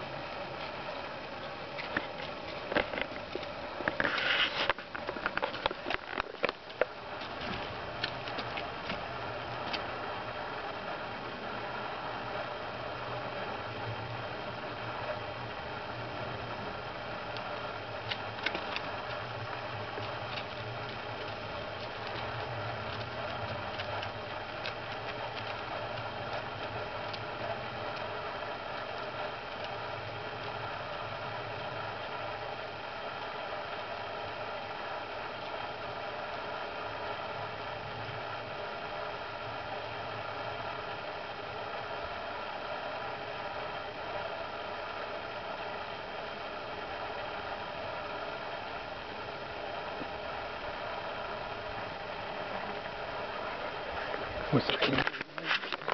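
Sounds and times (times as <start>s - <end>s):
steady low hum: 0.0s - 55.9s
hooves on gravel: 17.4s - 28.2s.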